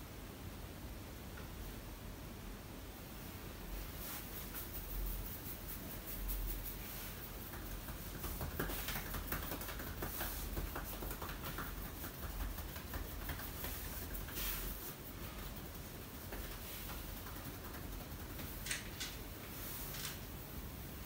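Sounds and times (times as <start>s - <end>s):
fingers rubbing through hair: 3.7s - 20.4s.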